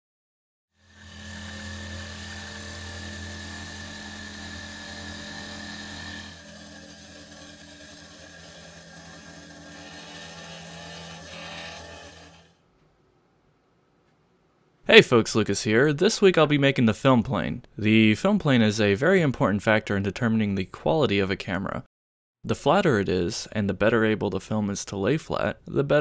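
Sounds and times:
milling machine cutting metal: 0.8 - 12.5.

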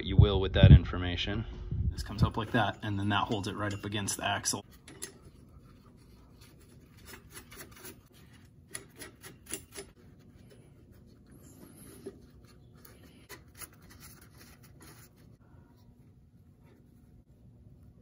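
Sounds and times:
small metallic clicks and scraping: 2.4 - 5.6, 6.9 - 10.0.

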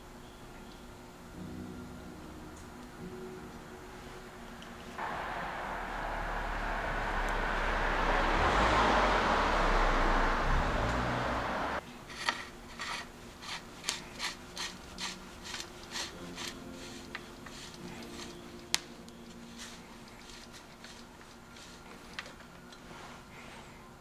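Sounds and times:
rushing noise: 5.0 - 11.8.

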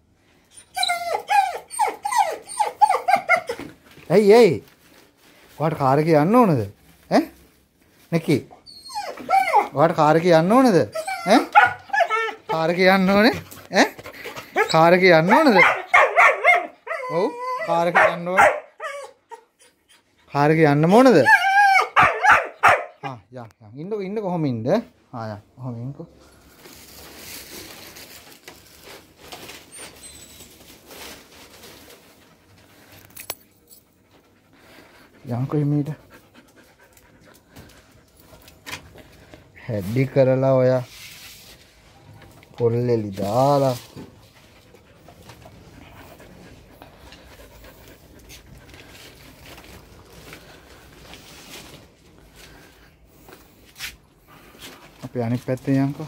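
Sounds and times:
dog panting: 13.3 - 15.1, 33.8 - 38.5, 44.3 - 49.3
light scuffing: 43.1 - 55.3.

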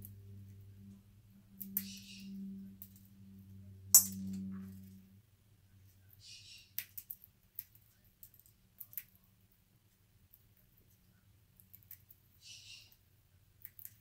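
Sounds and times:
low steady hum: 0.0 - 14.0
bird beak cracking seeds: 13.6 - 14.0.

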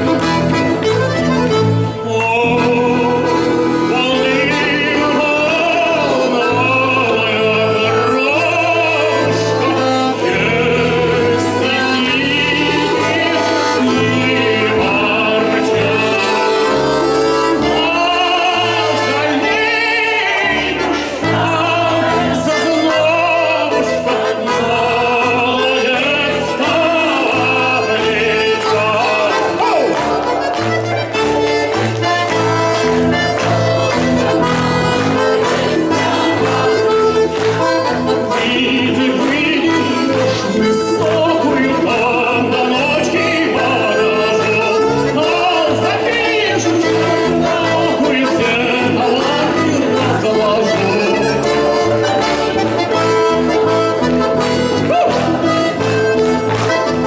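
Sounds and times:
accordion: 0.0 - 57.0
acoustic guitar: 0.0 - 57.0
rhythmic bass line: 0.0 - 57.0
man singing into a microphone: 1.8 - 30.2, 38.1 - 51.8.

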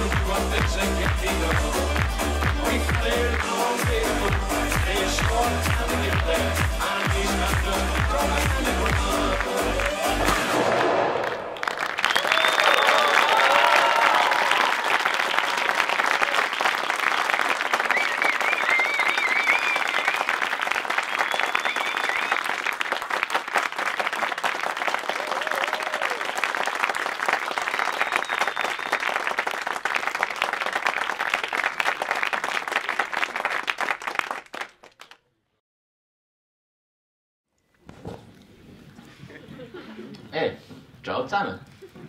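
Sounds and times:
audience applauding: 0.0 - 35.2
audience cheering: 9.6 - 34.2.

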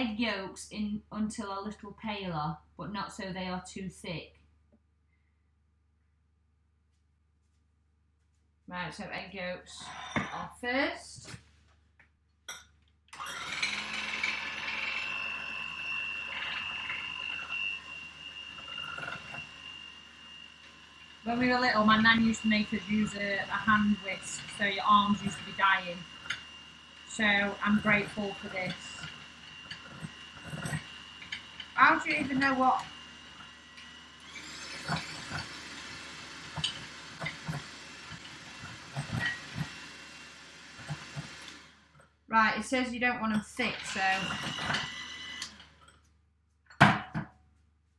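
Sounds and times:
electric hand mixer whining: 13.2 - 42.0, 43.5 - 45.8.

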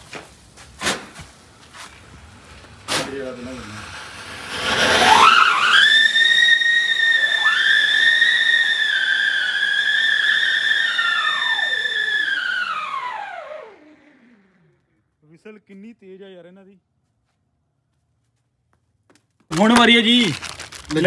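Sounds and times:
firework rushing hiss: 0.0 - 14.4
fireworks whistling: 0.8 - 14.4.

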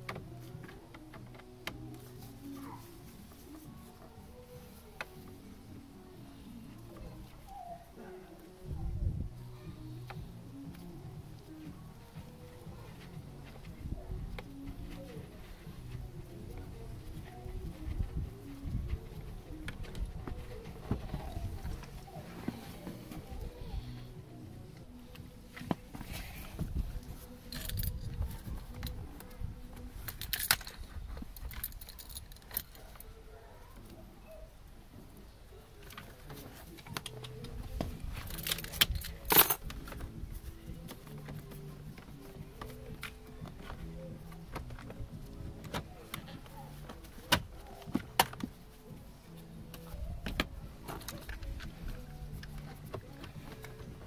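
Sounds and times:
quiet background music: 0.0 - 54.0
car keys jangling: 30.1 - 33.0, 38.2 - 39.8.

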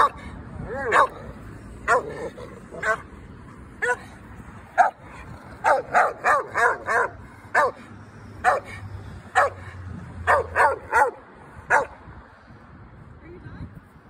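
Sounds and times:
dog barking: 0.8 - 1.3, 1.9 - 3.0, 3.8 - 4.0, 4.8 - 5.0, 5.6 - 7.8, 8.4 - 8.8, 9.4 - 9.6, 10.3 - 12.0.

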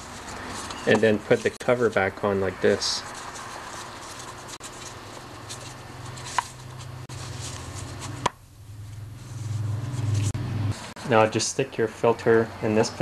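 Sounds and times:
plastic handling noise: 0.0 - 8.4
steady low hum: 0.0 - 13.0.

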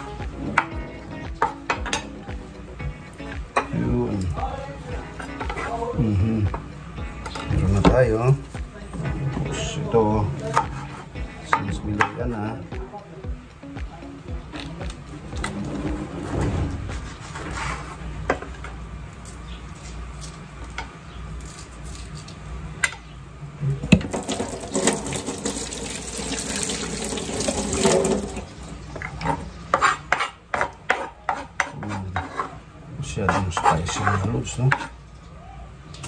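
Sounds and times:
knife chopping on wooden board: 29.2 - 32.5.

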